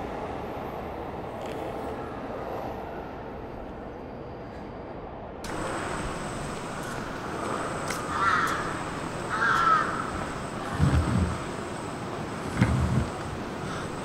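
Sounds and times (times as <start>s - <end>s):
steady background noise: 0.0s - 14.0s
crow cawing: 7.9s - 11.4s.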